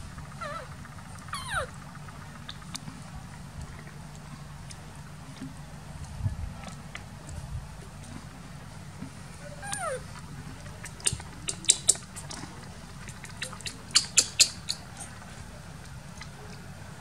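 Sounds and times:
baby monkey squeak: 1.3s - 1.7s, 9.6s - 10.0s, 11.0s - 12.4s, 13.2s - 15.1s.

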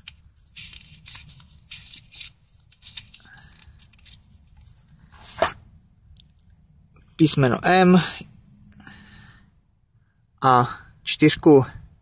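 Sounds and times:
paper pages rustling: 0.0s - 5.6s.

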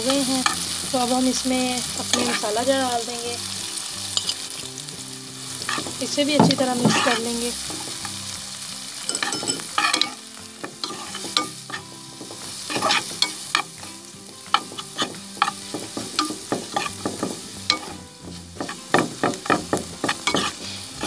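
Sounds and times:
onions sizzling in oil: 0.0s - 21.0s
spatula scraping a pan: 2.0s - 2.5s, 5.6s - 8.3s, 9.0s - 21.0s.

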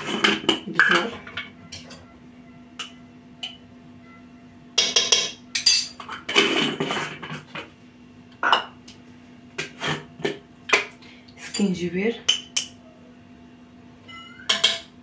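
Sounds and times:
glass jars clinking: 4.8s - 6.0s.

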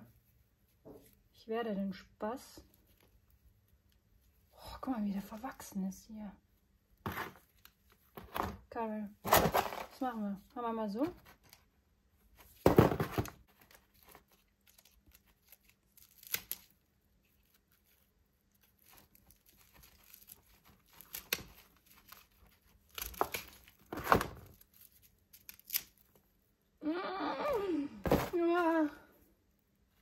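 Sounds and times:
tubers cracking and tearing: 13.6s - 26.2s
dry soil and roots rustling: 28.1s - 29.0s.

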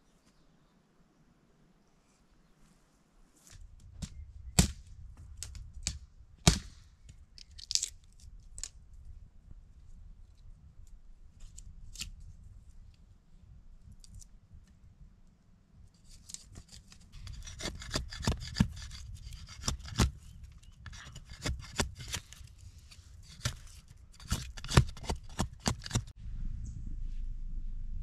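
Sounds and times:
wood cracking: 7.4s - 8.7s
machete cutting dry wood: 16.2s - 22.5s, 23.2s - 26.1s.

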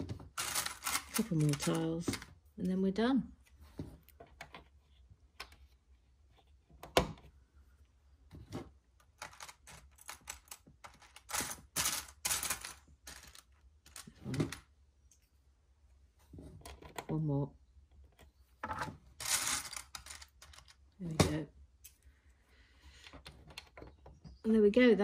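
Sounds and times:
plastic toy bricks clicking: 0.4s - 2.3s.

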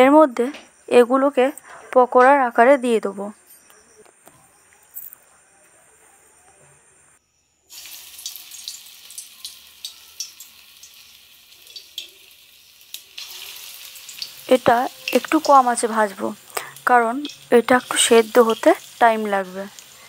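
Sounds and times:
batter sizzling in hot oil: 7.7s - 20.0s.

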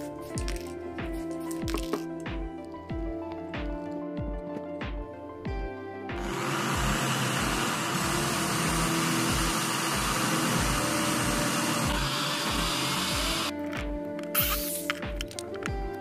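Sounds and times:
background music with beat: 0.0s - 16.0s
electric drill boring wood: 6.2s - 13.5s.

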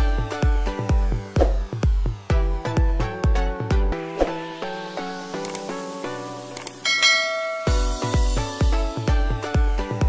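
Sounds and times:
kick-drum beat: 1.4s - 3.4s, 7.6s - 9.8s
bell-like chime: 6.8s - 8.4s.

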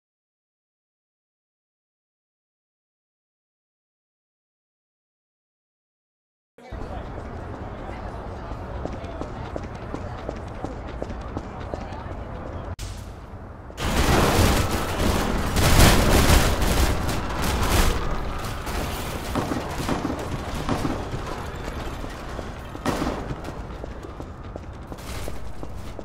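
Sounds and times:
crackling distorted noise: 12.8s - 26.0s.

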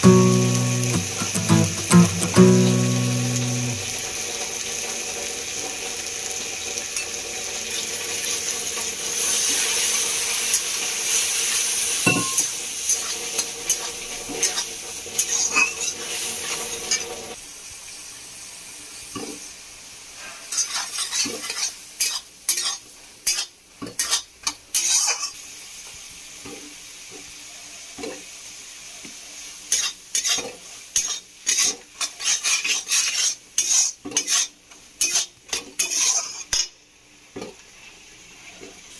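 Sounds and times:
food sizzling in hot oil: 0.0s - 38.9s
metal spatula scraping pan: 31.0s - 36.5s.

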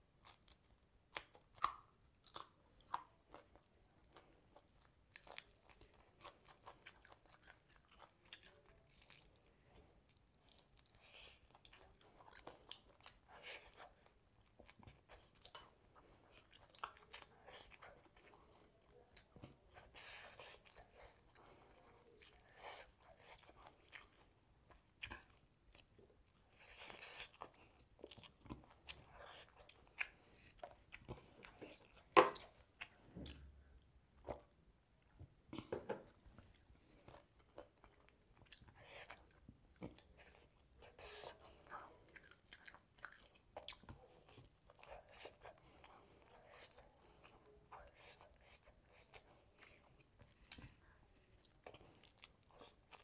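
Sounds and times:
person chewing food: 0.0s - 53.0s.

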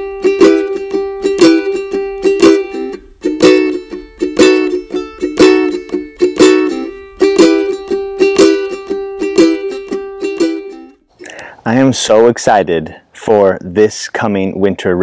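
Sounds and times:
strummed plucked-string chords: 0.0s - 11.0s.

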